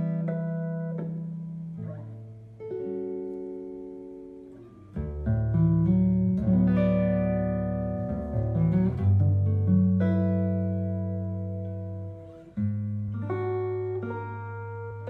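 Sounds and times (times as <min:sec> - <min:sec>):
guitar chords ringing: 0:00.0 - 0:15.0
deep bass guitar notes: 0:05.0 - 0:15.0.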